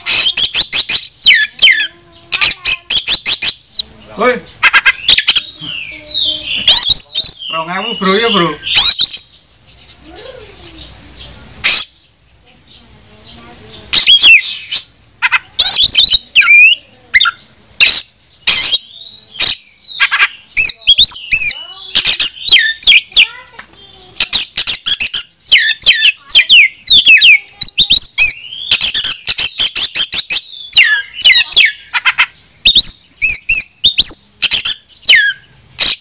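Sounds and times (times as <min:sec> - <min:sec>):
bird singing whistled and scratchy notes: 0:06.1 - 0:09.3, 0:13.9 - 0:14.9, 0:15.6 - 0:23.3, 0:24.2 - 0:31.8, 0:32.6 - 0:36.0.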